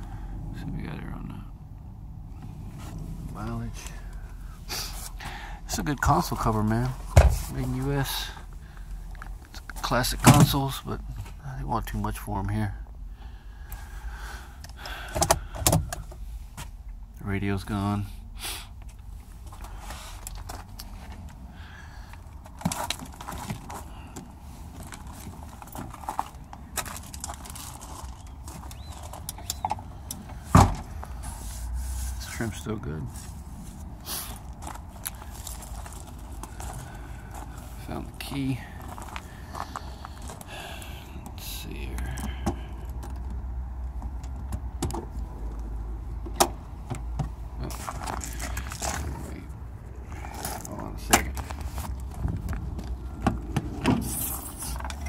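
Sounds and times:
low steady rumble: 0:00.0 - 0:55.0
handling clicks and knocks: 0:22.4 - 0:30.9.

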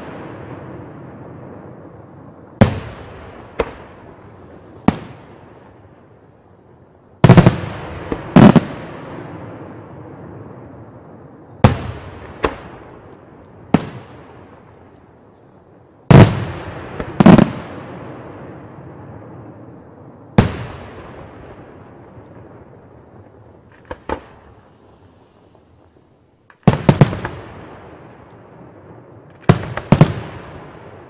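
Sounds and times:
firework bangs with rumbling echo: 0:11.6 - 0:13.1, 0:20.4 - 0:31.0.

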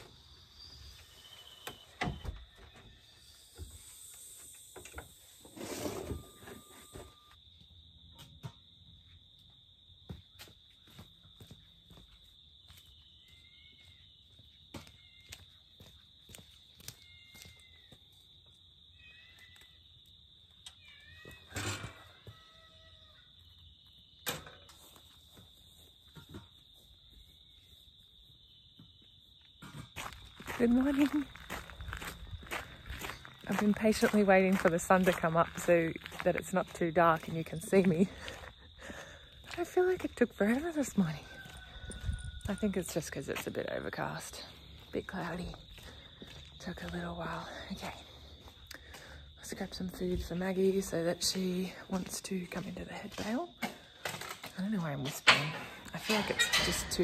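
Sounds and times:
high insect drone: 0:00.0 - 0:34.2
crickets chirring: 0:00.0 - 0:57.0
footsteps on grass: 0:29.9 - 0:39.6.

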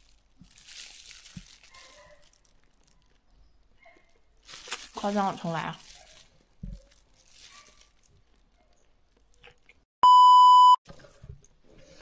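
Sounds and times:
soft chewing: 0:00.3 - 0:05.0, 0:05.8 - 0:09.9, 0:10.9 - 0:12.0
test-tone beep: 0:10.0 - 0:10.8.

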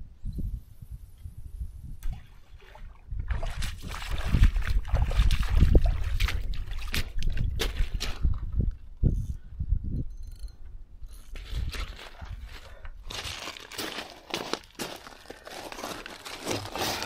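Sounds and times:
boots splashing through water: 0:02.7 - 0:08.2.

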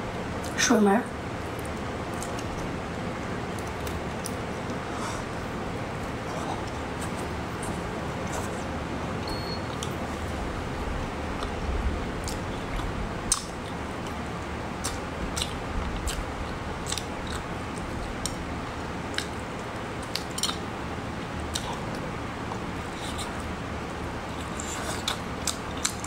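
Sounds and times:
steady background hiss: 0:00.0 - 0:26.0
seafood crackling while eaten: 0:19.1 - 0:20.7, 0:24.3 - 0:26.0.

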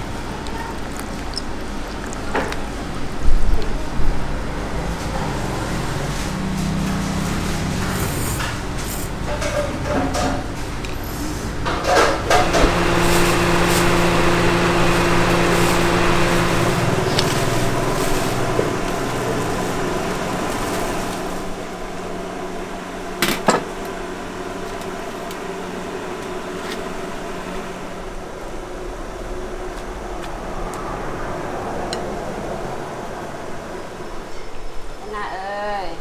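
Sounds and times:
mechanical hum: 0:00.0 - 0:36.0.

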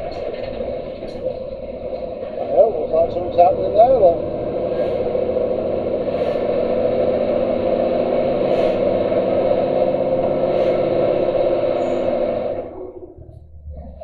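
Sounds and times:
lorry engine droning: 0:00.0 - 0:14.0.

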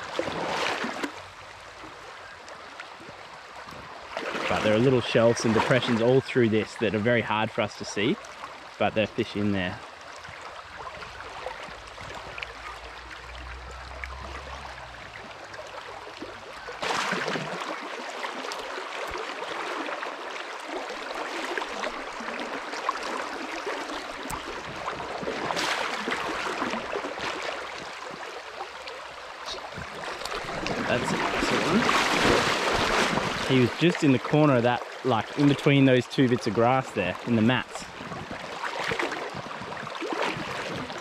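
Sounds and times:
river water rushing: 0:07.5 - 0:41.0
fish splashing at surface: 0:13.3 - 0:20.0.

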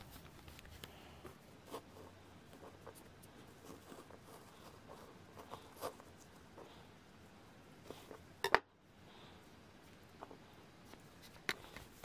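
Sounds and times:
soft rubbing: 0:00.0 - 0:08.3.

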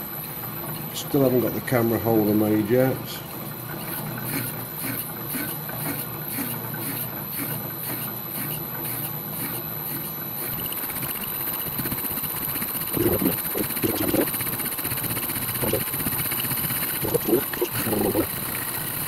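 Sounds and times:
saw cutting steel: 0:03.8 - 0:10.6, 0:12.9 - 0:14.3, 0:17.0 - 0:18.3
fine rapid chatter and squeal: 0:10.8 - 0:19.0.

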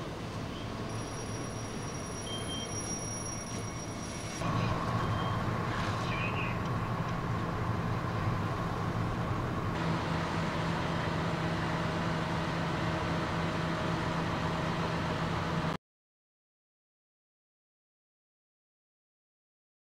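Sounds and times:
diesel engine running: 0:00.0 - 0:15.8.

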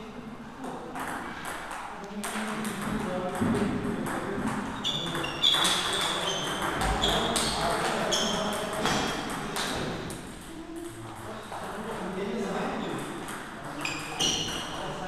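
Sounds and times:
table tennis ball hits: 0:00.6 - 0:10.9.

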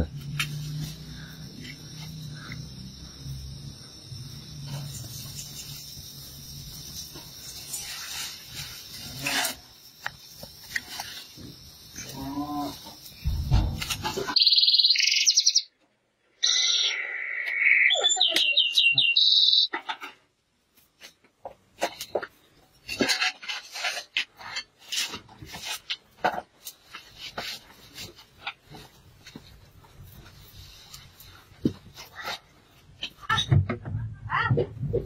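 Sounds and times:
canary singing: 0:14.3 - 0:15.8, 0:16.4 - 0:19.8.

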